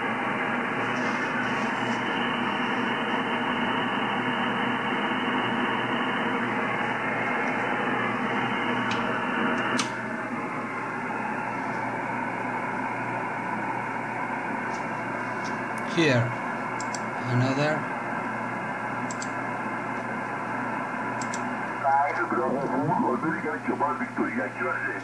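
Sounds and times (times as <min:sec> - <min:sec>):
radio static hiss: 0:00.8 - 0:04.7, 0:21.6 - 0:25.0
sharp click: 0:19.1 - 0:19.4, 0:21.2 - 0:21.4.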